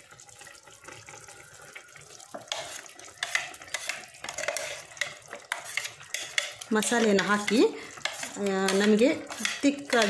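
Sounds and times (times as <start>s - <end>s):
pot simmering: 0.0s - 10.0s
utensil scraping and clinking: 2.5s - 10.0s.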